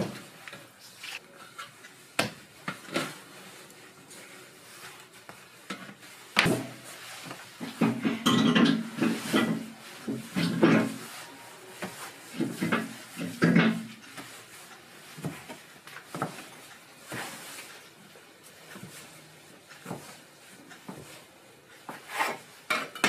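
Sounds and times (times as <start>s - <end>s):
dough pressed and folded: 0.0s - 23.0s
kitchen knocks and clatter: 5.6s - 11.1s, 11.8s - 14.4s, 21.8s - 23.0s.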